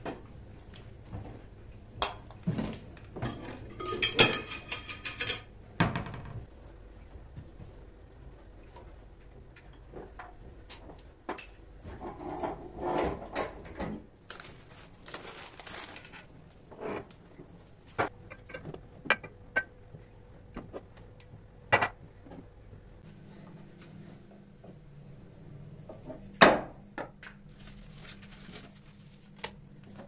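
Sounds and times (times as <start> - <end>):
packet rustling: 14.3 - 16.3.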